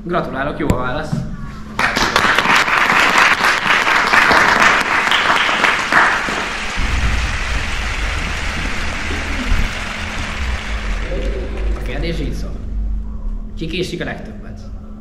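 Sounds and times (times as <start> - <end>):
audience applauding: 1.8 - 12.3.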